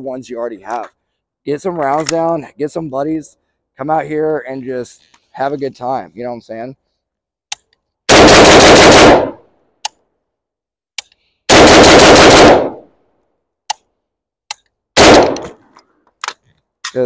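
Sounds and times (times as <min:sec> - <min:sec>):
rifle gunshots: 0:08.1 - 0:09.4, 0:11.5 - 0:12.9, 0:15.0 - 0:15.6.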